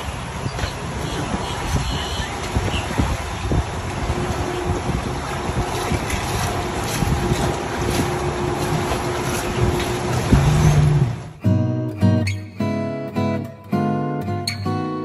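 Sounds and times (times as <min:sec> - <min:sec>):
water rushing past hull: 0:00.0 - 0:11.4
wind buffeting microphone: 0:00.0 - 0:11.4.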